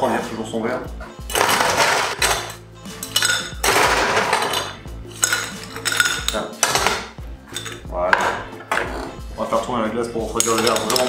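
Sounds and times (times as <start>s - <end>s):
ice cubes clattering: 1.3s - 2.5s, 3.1s - 7.0s, 10.4s - 11.0s.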